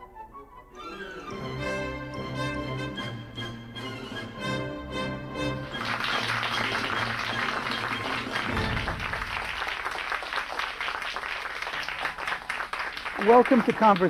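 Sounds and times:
orchestral theme music: 0:00.0 - 0:10.1
audience applause: 0:05.4 - 0:14.0.

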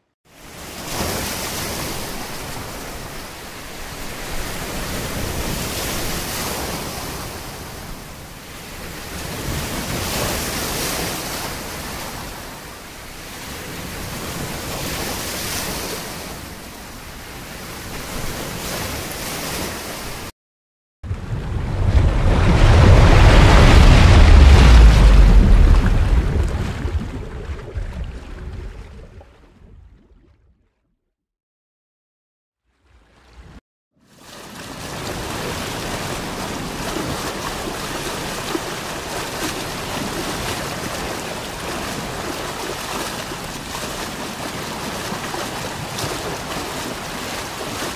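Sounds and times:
wind: 0:00.0 - 0:20.3, 0:21.0 - 0:30.7, 0:32.8 - 0:47.9
sea waves washing: 0:21.1 - 0:28.9, 0:34.1 - 0:47.9
heavy low rumble: 0:21.1 - 0:29.0.

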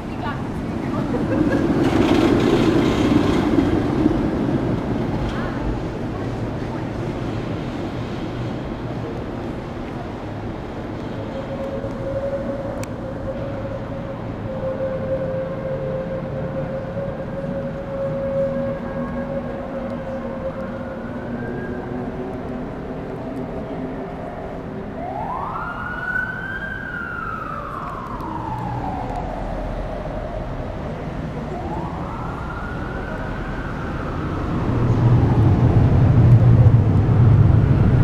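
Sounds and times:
city traffic: 0:00.0 - 0:38.0
emergency siren wailing: 0:08.6 - 0:38.0.

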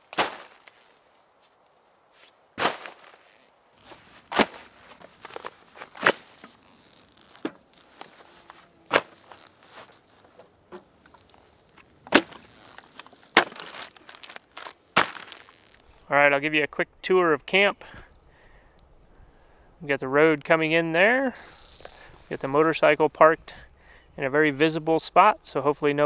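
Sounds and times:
soft rustling: 0:00.0 - 0:16.1, 0:21.4 - 0:23.5
gear dropped on ground: 0:02.6 - 0:15.9.

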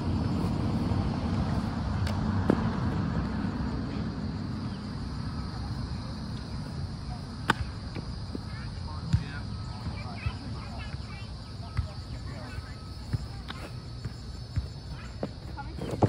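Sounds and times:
low outdoor rumble: 0:00.0 - 0:16.0
sharp slaps: 0:07.4 - 0:07.7.

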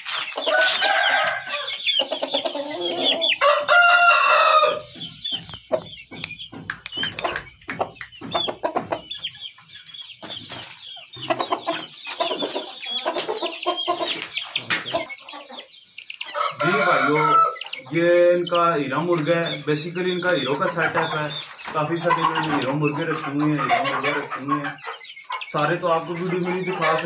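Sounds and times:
chickens clucking: 0:00.0 - 0:27.0
rooster crowing: 0:00.5 - 0:01.8, 0:02.6 - 0:04.9, 0:16.3 - 0:17.6.

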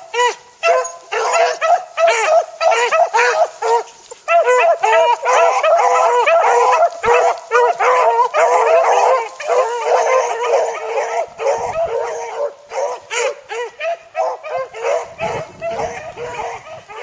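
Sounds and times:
dogs baying: 0:00.0 - 0:17.0.

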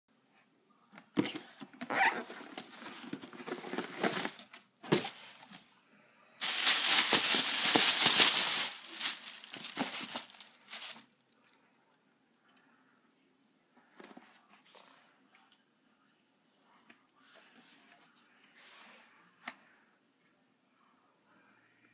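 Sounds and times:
tissue paper rustling: 0:02.2 - 0:05.6, 0:06.4 - 0:11.0.

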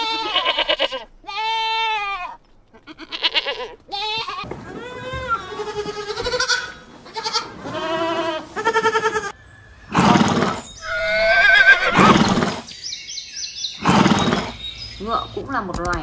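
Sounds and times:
goats bleating: 0:00.0 - 0:09.4
horse neighing: 0:02.9 - 0:12.7, 0:13.8 - 0:14.6.

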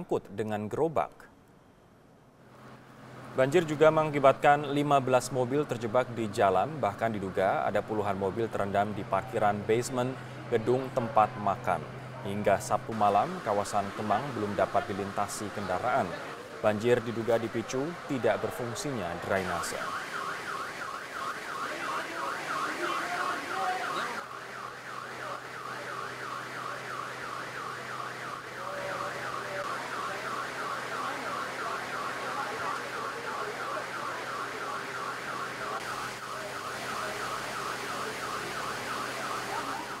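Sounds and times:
car alarm warbling: 0:13.0 - 0:40.0.

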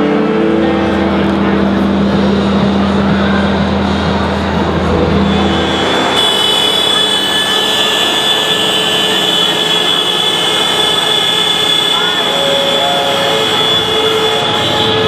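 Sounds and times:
tractor horns sounding together: 0:04.9 - 0:15.0.

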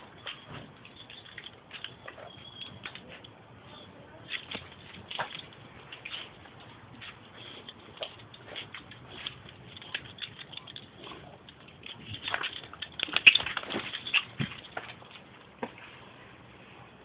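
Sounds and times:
claws clicking on concrete: 0:07.0 - 0:15.2.

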